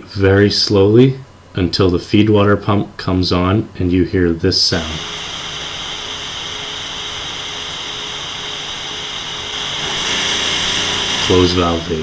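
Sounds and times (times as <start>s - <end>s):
water pump hissing: 4.6s - 12.0s.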